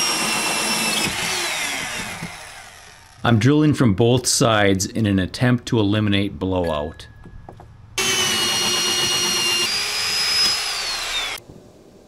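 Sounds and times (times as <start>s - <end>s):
electric drill cutting wood: 0.0s - 3.3s, 8.0s - 11.4s.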